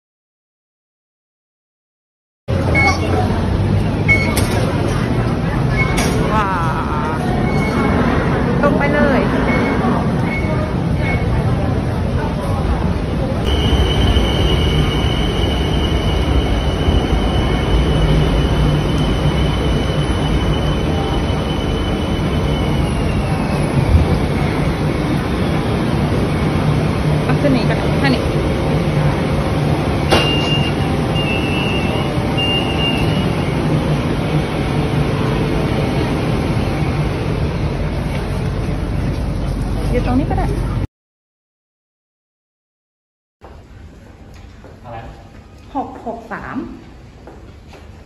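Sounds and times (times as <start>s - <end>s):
electric train low rumble: 2.5s - 40.9s, 43.5s - 48.0s
high warning beeps: 2.7s - 3.1s, 4.0s - 4.4s, 13.5s - 23.8s, 30.1s - 33.7s
high-pitched whine: 13.4s - 38.6s.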